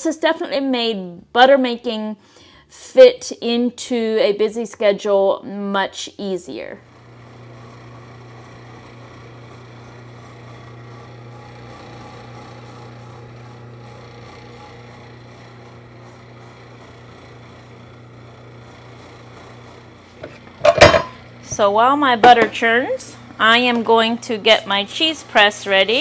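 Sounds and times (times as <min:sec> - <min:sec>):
butter churn motor humming: 0:06.8 - 0:26.0.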